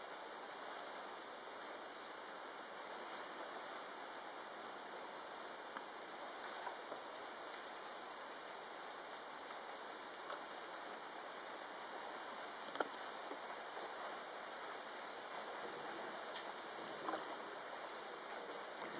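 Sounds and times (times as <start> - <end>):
crackle: 12.6 - 18.9.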